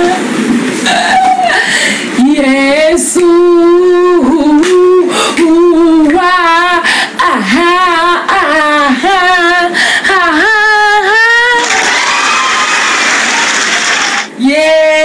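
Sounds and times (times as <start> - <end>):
woman singing unaccompanied: 2.2 - 11.6, 14.4 - 15.0.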